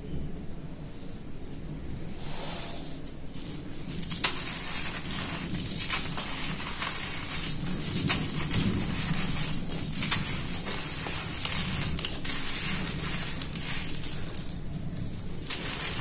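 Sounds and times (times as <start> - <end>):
gritty crunching of crumbling chunks: 3.3 - 16.0
pieces snapping: 3.4 - 16.0.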